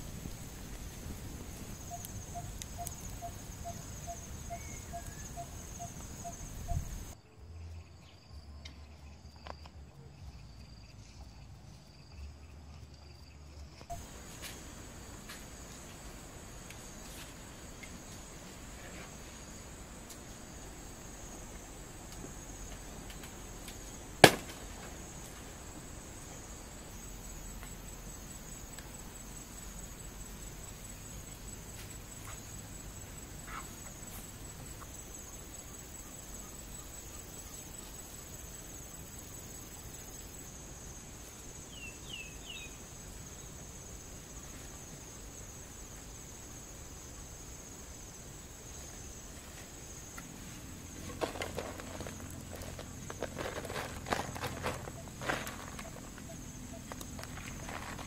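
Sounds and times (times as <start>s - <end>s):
high-pitched insect chorus: 0.0s - 58.0s
sharp snap: 24.2s - 24.6s
soil pattering onto a leaf: 51.0s - 58.0s.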